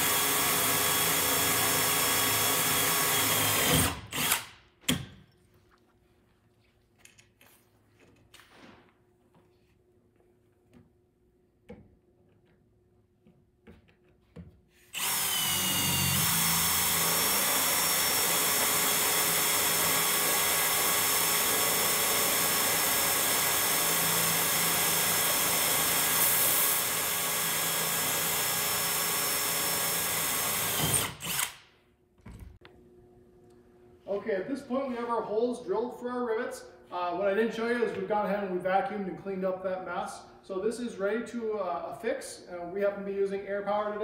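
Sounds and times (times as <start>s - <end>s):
power drill boring: 0.0s - 4.6s, 14.9s - 31.6s.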